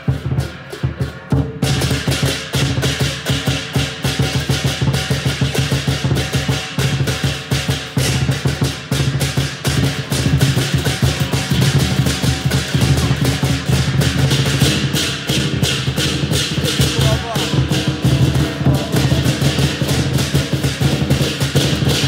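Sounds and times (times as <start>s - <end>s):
hand cymbals crashing: 0.0s - 22.0s
large drum beaten fast: 0.0s - 22.0s.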